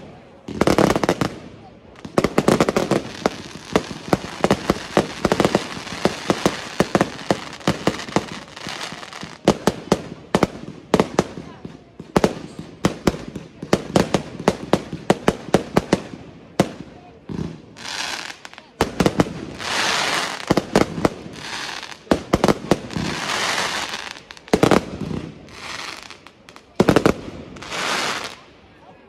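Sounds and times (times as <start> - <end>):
firework bangs: 0.0 - 28.4.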